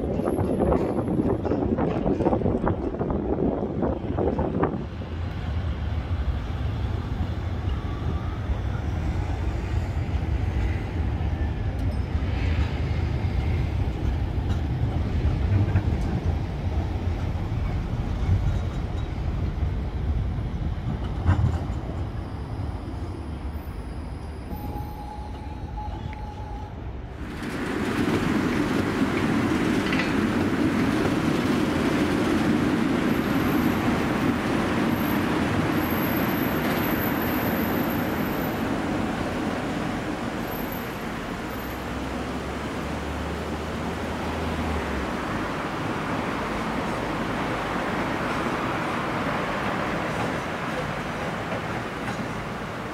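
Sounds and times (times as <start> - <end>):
rail clicks: 0.0 - 6.1, 7.3 - 22.3, 24.5 - 41.4, 44.7 - 52.9
tram rumbling on rails: 0.0 - 52.9
steady squeal: 22.0 - 26.7.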